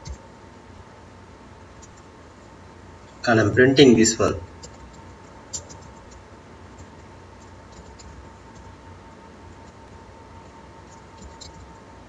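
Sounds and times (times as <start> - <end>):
faint keyboard keystrokes: 4.6 - 6.2, 6.8 - 8.7, 10.9 - 11.8.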